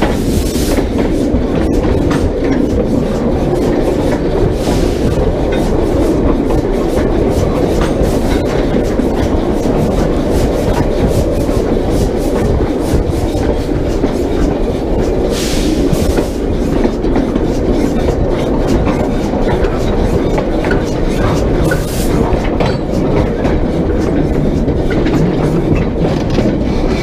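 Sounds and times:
steam hiss: 0:00.0 - 0:01.5, 0:03.9 - 0:08.9, 0:15.0 - 0:16.8
rumble of rail cars running: 0:00.0 - 0:27.0
wheels clanking over rail joints: 0:00.0 - 0:27.0.

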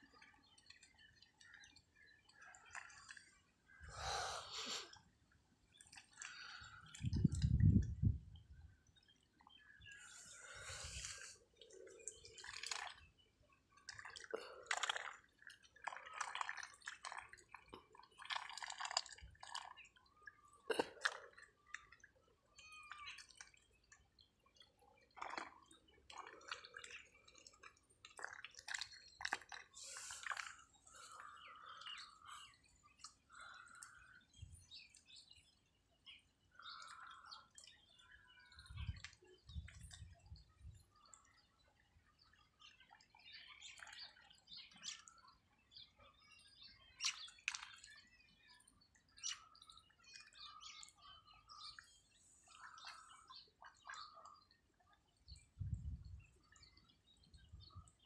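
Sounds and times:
ducks dabbling in water: 0:00.0 - 0:08.0, 0:08.6 - 0:55.6.

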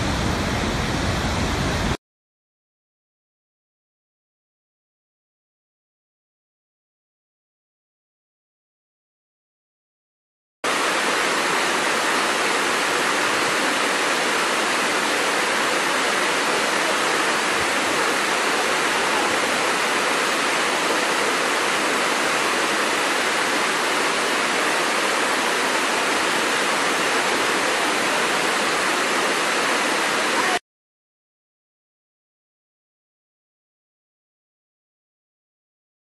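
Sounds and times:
waterfall rushing over rocks: 0:10.7 - 0:30.6.

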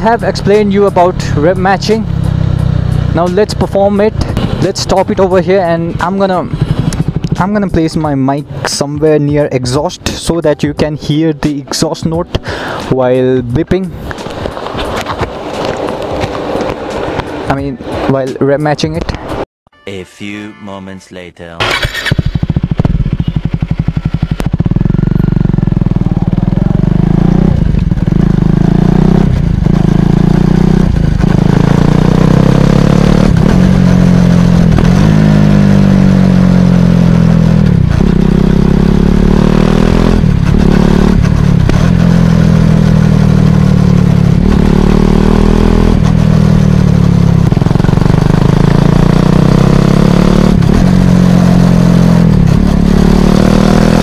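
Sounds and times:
motorcycle engine exhaust: 0:00.0 - 0:08.8, 0:21.6 - 0:54.0.

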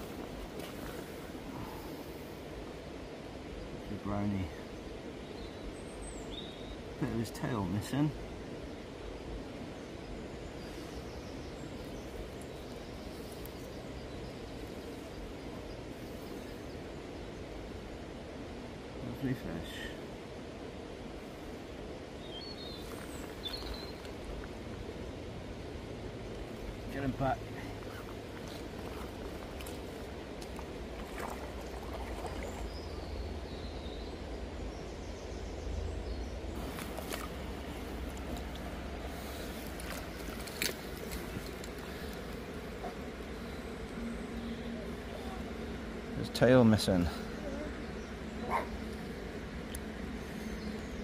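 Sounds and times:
faint bird chirps: 0:22.2 - 0:24.2
river flowing over stones: 0:22.8 - 0:33.4, 0:36.6 - 0:43.4.

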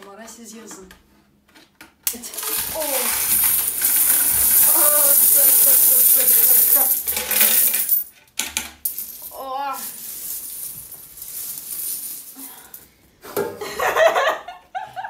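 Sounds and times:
coins pouring and clinking: 0:02.1 - 0:08.1, 0:08.8 - 0:12.8
laughter: 0:13.4 - 0:15.0.

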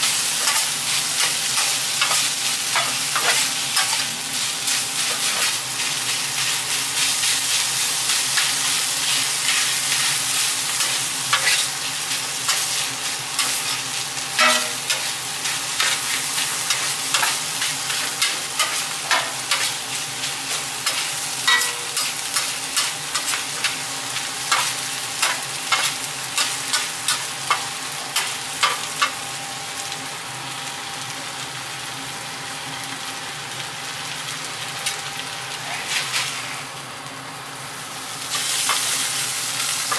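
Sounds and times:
meat sizzling on a griddle: 0:00.0 - 0:39.9
metal spatula clacking on steel: 0:14.4 - 0:15.0, 0:20.9 - 0:23.3.

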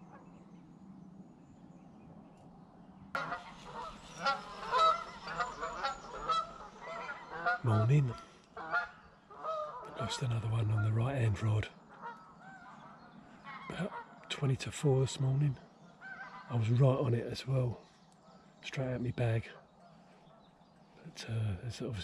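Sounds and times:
waterfowl calling: 0:03.2 - 0:14.8, 0:15.6 - 0:17.0.

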